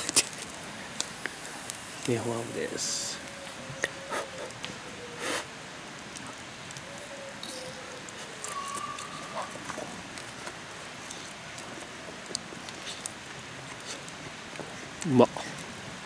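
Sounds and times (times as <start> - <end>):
fire crackling: 0.0 - 16.0
fire pops: 0.0 - 16.0
faint whistling tones: 6.8 - 9.9.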